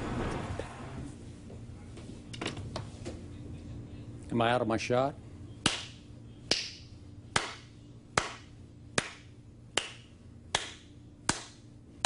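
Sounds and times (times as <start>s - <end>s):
slow hand claps: 5.6s - 11.6s.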